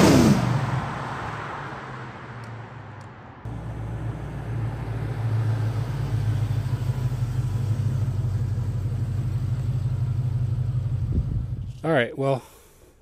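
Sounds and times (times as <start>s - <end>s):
pickup truck driving past: 3.5s - 11.6s.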